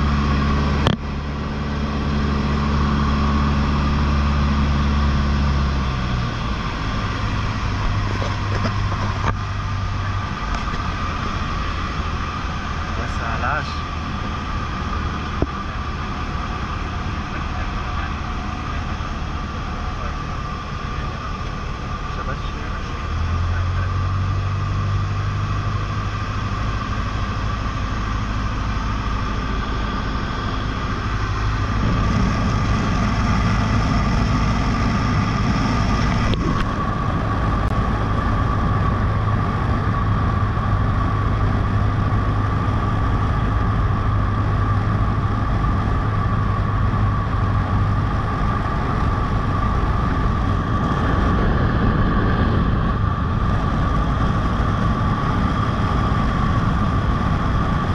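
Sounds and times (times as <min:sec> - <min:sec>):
airplane engine and propeller: 0:00.0 - 0:57.9
airflow noise: 0:26.7 - 0:57.9.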